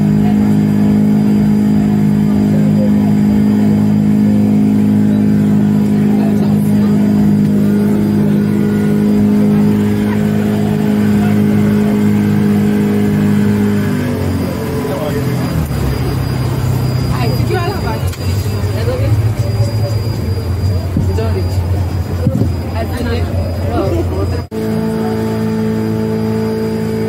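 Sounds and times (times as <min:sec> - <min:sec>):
speedboat engine running: 0:00.0 - 0:27.0.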